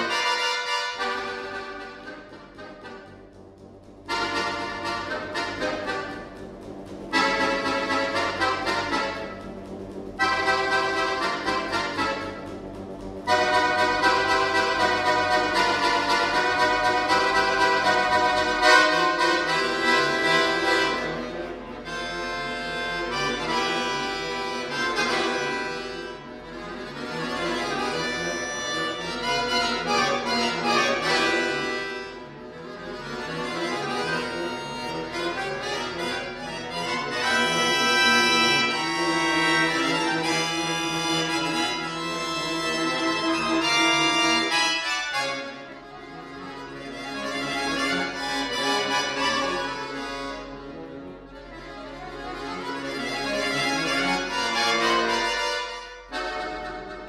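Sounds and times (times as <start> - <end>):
button accordion playing: 0.0 - 57.0.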